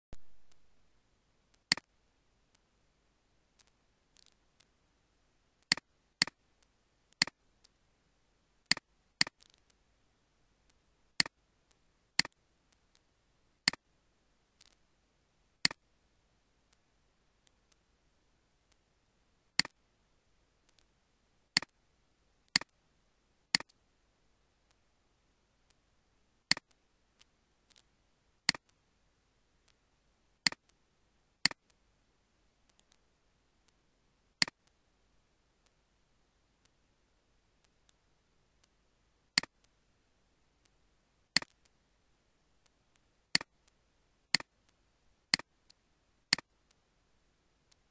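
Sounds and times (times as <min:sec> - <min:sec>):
computer mouse clicks: 0:01.5 - 0:01.9, 0:03.6 - 0:04.7, 0:05.6 - 0:06.4, 0:08.7 - 0:09.8, 0:12.2 - 0:13.0, 0:21.6 - 0:21.8, 0:22.5 - 0:22.8, 0:23.6 - 0:23.8, 0:26.5 - 0:26.8, 0:28.5 - 0:28.8, 0:30.5 - 0:30.8, 0:41.4 - 0:41.7, 0:42.9 - 0:44.5, 0:46.3 - 0:46.8
faint ticks: 0:03.5 - 0:04.8, 0:05.6 - 0:07.8, 0:08.6 - 0:09.8, 0:14.6 - 0:14.8, 0:15.6 - 0:15.9, 0:20.6 - 0:20.9, 0:21.5 - 0:21.8, 0:22.5 - 0:22.8, 0:23.5 - 0:23.8, 0:26.5 - 0:28.8, 0:30.4 - 0:30.8, 0:31.4 - 0:31.8, 0:32.6 - 0:33.8, 0:34.4 - 0:34.8, 0:40.6 - 0:41.8, 0:42.5 - 0:46.8.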